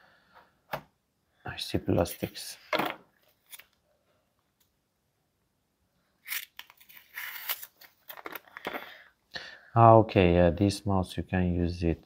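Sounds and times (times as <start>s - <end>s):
plastic packaging rustling: 6.3s - 9.0s.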